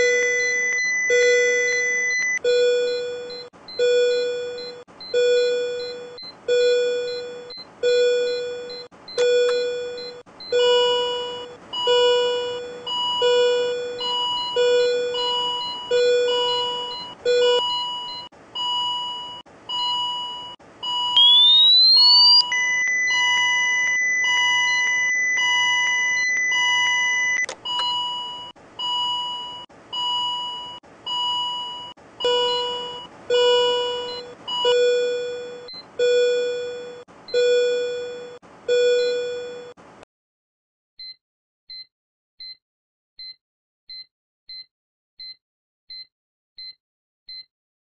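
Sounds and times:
monitor alarm beeping: 0.0 - 39.8
defibrillator charging whine: 20.8 - 29.2
steady ready tone: 21.2 - 22.8.

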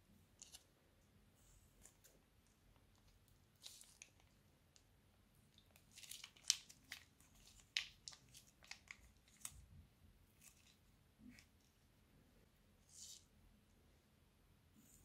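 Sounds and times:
plastic piping bag crinkling: 2.8 - 4.9, 5.6 - 9.7.

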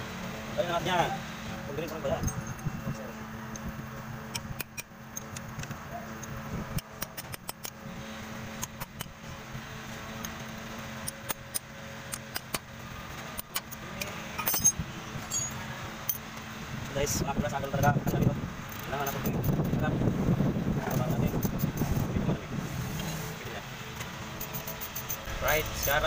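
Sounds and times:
steady low hum: 0.0 - 26.0
metal hand tools clinking: 14.4 - 16.2.

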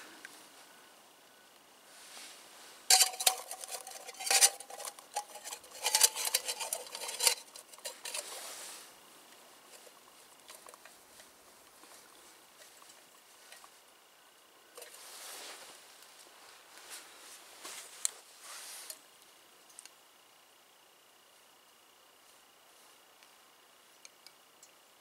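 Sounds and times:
metal cookpot and lid clattering: 2.9 - 8.3.

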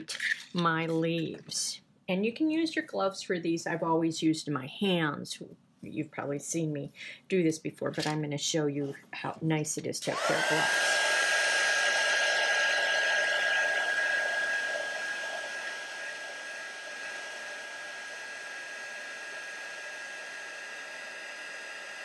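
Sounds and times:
heat gun blowing air: 10.1 - 22.0.

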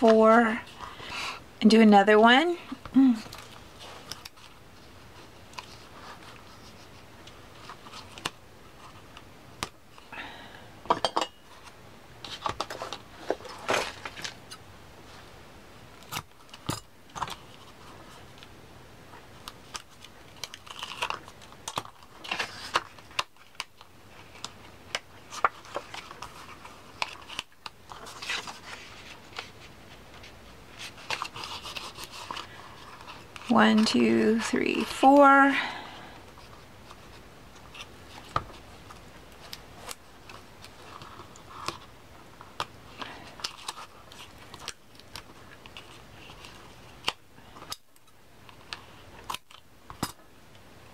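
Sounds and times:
paper rustling and scraping: 11.5 - 15.3, 19.6 - 34.4.

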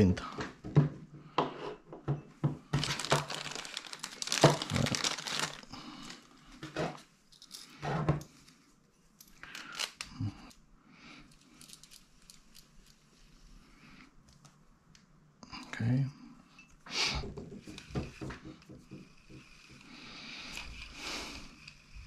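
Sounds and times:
plastic bag crinkling and tearing: 2.7 - 6.3, 9.4 - 10.2.

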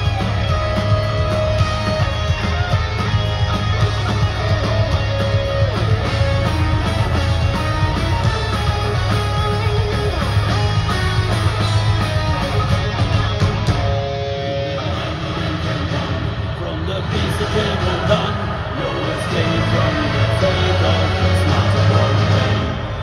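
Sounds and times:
pounding drums: 0.0 - 14.1
electric guitar melody: 0.0 - 15.9
metal band playing live: 0.0 - 23.0.

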